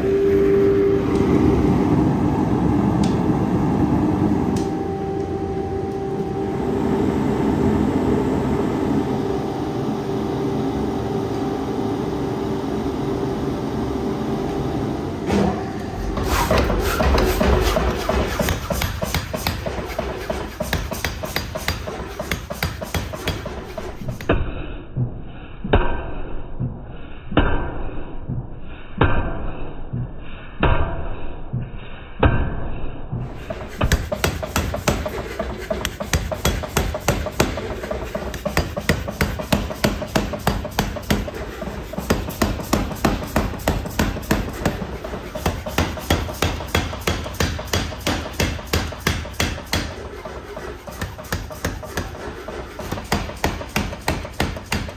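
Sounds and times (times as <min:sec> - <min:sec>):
power hammer pounding hot steel: 0:15.3 - 0:24.4, 0:33.2 - 0:54.9.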